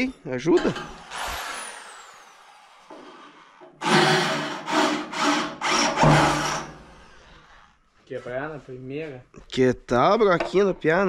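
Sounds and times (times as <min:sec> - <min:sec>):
electric drill whining: 0:00.9 - 0:07.1.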